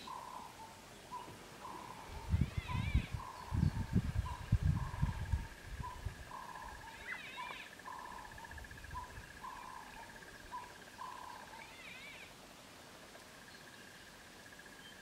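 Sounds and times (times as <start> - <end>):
light wind rumble: 0.0 - 10.9
bird calling: 0.0 - 12.3.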